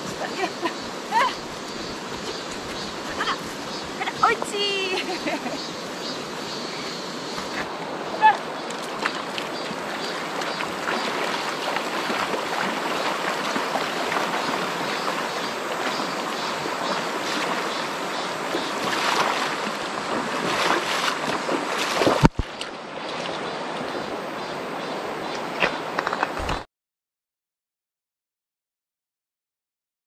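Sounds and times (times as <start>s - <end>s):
stream rushing: 0.0s - 26.6s.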